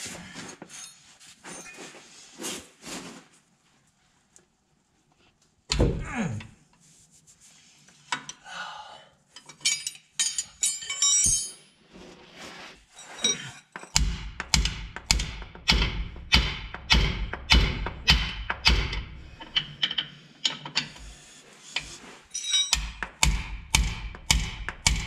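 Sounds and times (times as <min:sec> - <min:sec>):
metal tools clinking: 0:09.4 - 0:11.8, 0:12.9 - 0:14.0, 0:22.2 - 0:23.0.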